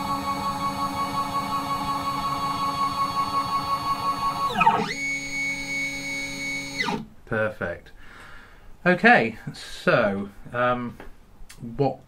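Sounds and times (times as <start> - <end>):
stepper motors whining: 0.0 - 7.0.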